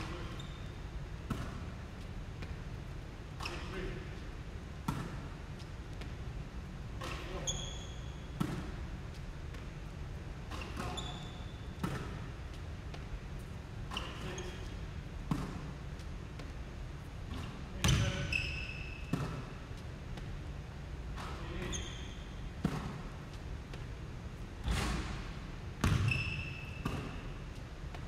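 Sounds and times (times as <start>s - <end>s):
sneaker squeaks: 0.0s - 2.0s, 3.3s - 4.2s, 7.0s - 8.9s, 10.4s - 15.8s, 17.3s - 20.3s, 21.1s - 23.1s, 24.6s - 27.7s
basketballs bouncing on wood floor: 17.3s - 18.4s, 19.1s - 19.5s, 25.8s - 27.2s.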